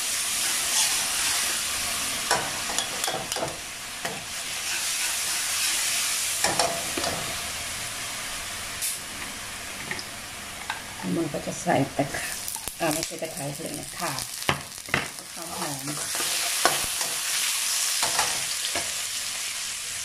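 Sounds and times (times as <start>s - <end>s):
paste sizzling in hot oil: 0.0s - 9.0s, 10.4s - 20.0s
metal ladle scraping wok: 0.4s - 1.6s.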